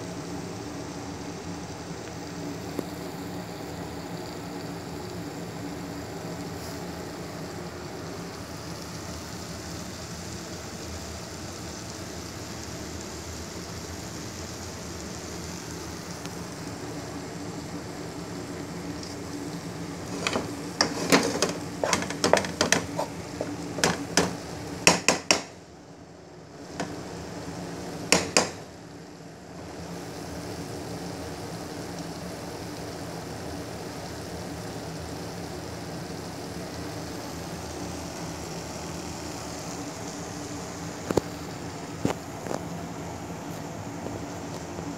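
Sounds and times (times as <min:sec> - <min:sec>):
steady hiss: 0:00.0 - 0:44.9
wooden spatula tapping frying pan: 0:20.1 - 0:25.6, 0:26.8 - 0:27.0, 0:28.1 - 0:28.7.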